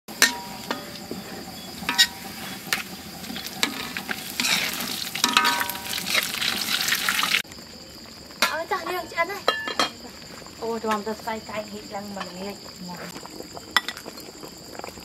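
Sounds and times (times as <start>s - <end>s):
garlic sizzling in hot oil: 0.1s - 7.5s
strainer clinking against wok: 3.6s - 6.4s.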